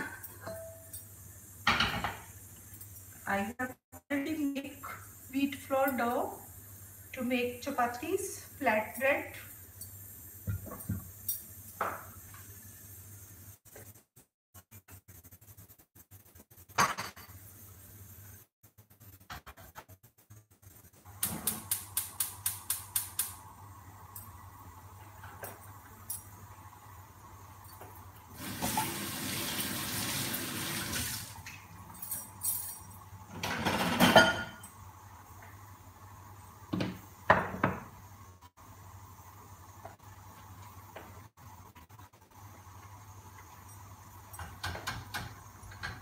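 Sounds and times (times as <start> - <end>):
kitchen knocks and clatters: 0.0 - 2.3, 10.4 - 12.1, 16.7 - 17.4, 19.2 - 20.0, 31.4 - 34.8, 36.7 - 38.0, 44.3 - 46.0
gas stove igniter clicking: 21.2 - 23.4.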